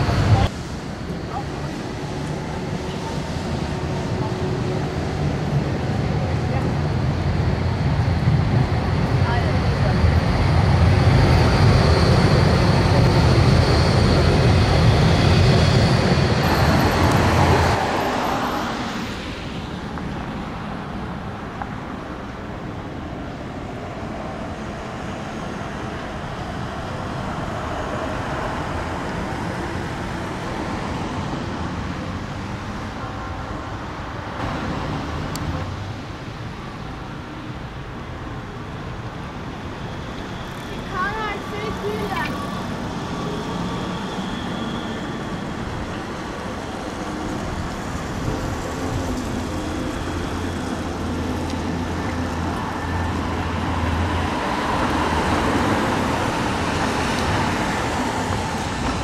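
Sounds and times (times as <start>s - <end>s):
city traffic noise: 0.0s - 59.0s
distant tram: 0.0s - 59.0s
tram rumbling past: 0.0s - 59.0s.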